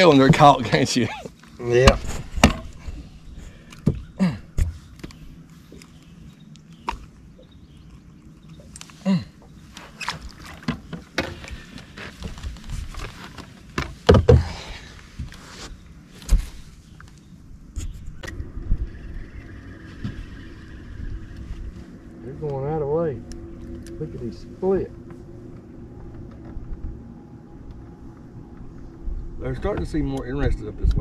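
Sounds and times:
knocks and rattles of fish handling: 9.8 - 15.4
faint low hum: 14.3 - 31.0.

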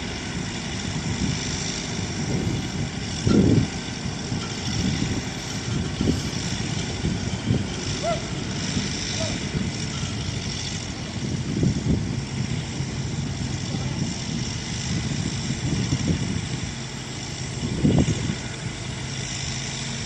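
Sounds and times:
diesel engine running: 0.0 - 20.0
low wind buffeting: 0.0 - 20.0.

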